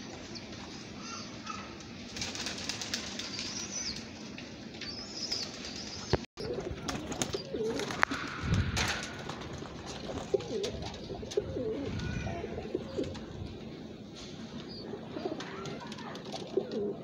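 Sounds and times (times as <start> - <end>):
wing flaps: 1.8 - 13.7
pigeons cooing: 4.8 - 17.0.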